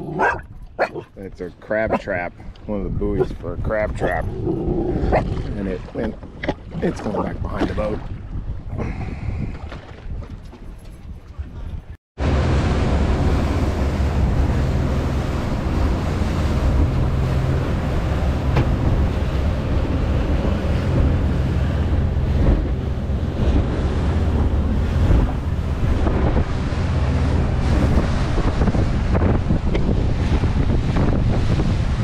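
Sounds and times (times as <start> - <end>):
wind buffeting microphone: 0.0 - 32.0
outboard motor drone: 12.2 - 32.0
rushing water: 12.2 - 32.0.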